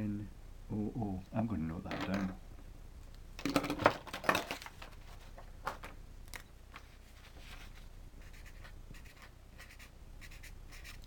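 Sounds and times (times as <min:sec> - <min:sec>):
paper rustling: 0:06.8 - 0:07.9
pen scratching on paper: 0:08.2 - 0:11.0.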